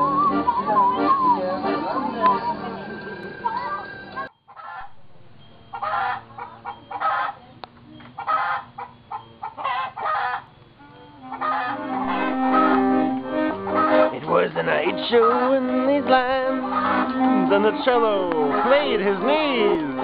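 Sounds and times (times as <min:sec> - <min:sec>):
clarinet and instruments playing: 0:00.0 - 0:06.2, 0:10.8 - 0:20.0
chickens clucking: 0:00.0 - 0:20.0.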